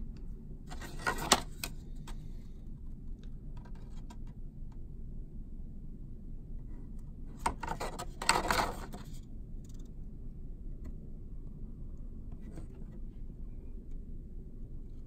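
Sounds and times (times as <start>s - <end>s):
cardboard rustling and scraping: 0.7s - 2.2s, 7.4s - 9.2s.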